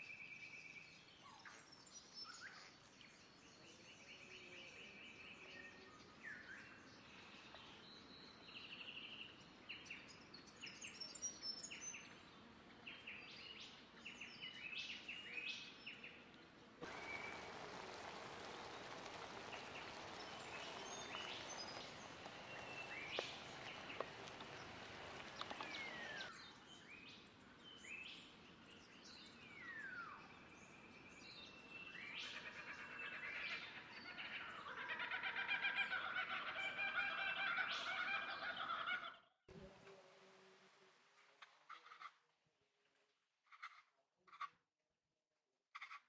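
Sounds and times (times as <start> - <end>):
sauce simmering hiss: 16.8 - 26.3
birds calling: 16.8 - 26.4
bird chirps: 16.8 - 26.5.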